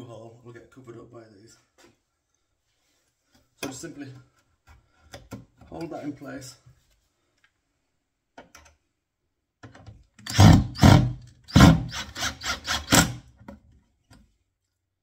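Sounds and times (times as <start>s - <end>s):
cordless drill driving screw: 10.2s - 13.2s.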